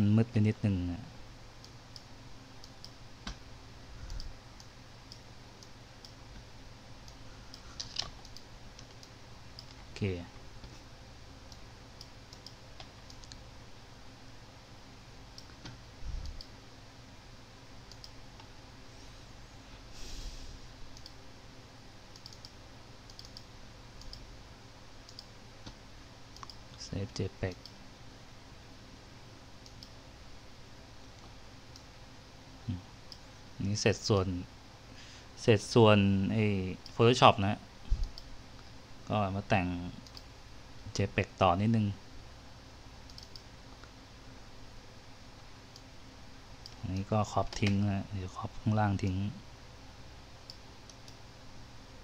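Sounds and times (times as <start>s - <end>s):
faint low hum: 0.0s - 52.0s
computer mouse clicking: 1.6s - 3.4s, 4.0s - 9.9s, 11.5s - 13.4s, 15.4s - 16.6s, 17.9s - 18.5s, 20.9s - 21.2s, 22.1s - 24.3s, 25.0s - 26.8s, 29.6s - 30.0s, 31.0s - 31.9s, 38.0s - 38.7s, 40.0s - 40.3s, 43.1s - 44.0s, 46.6s - 47.8s, 50.4s - 51.2s
short hiss: 19.9s - 20.7s.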